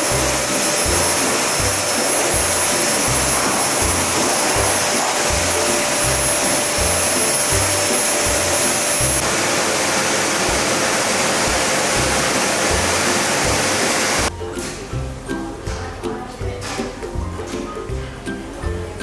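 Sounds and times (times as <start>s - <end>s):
hair dryer blowing: 0.0s - 14.3s.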